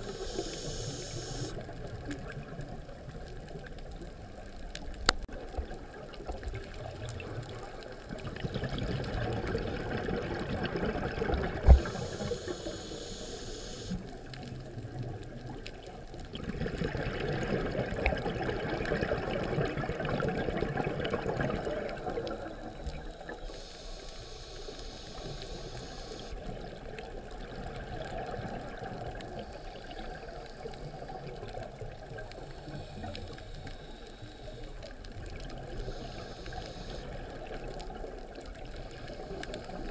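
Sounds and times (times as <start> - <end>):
regulator inhalation hiss: 0.0 - 1.6, 11.7 - 14.0, 23.3 - 26.4, 35.9 - 37.2
exhaled bubbles rushing underwater: 0.0 - 4.7, 5.3 - 13.3, 13.9 - 24.3, 25.0 - 39.9.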